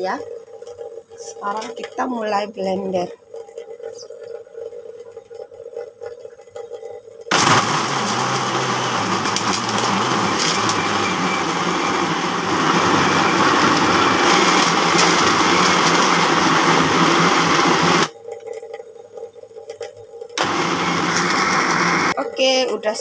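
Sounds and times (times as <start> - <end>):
blender grinding: 7.3 - 18.1, 20.4 - 22.2.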